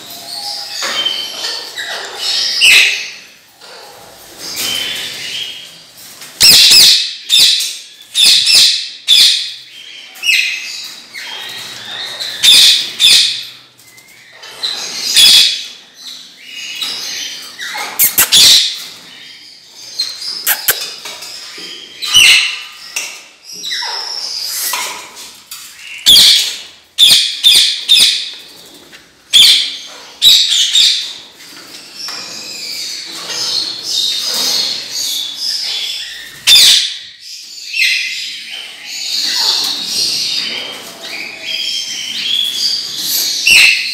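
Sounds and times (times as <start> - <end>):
parrots screeching: 16.8 - 18.8, 20.0 - 20.9, 34.6 - 37.1, 37.7 - 43.9.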